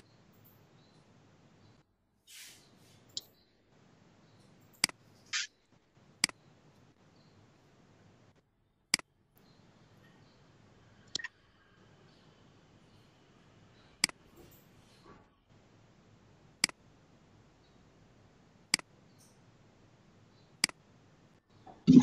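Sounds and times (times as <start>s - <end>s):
short soft hisses: 2.3s - 3.1s.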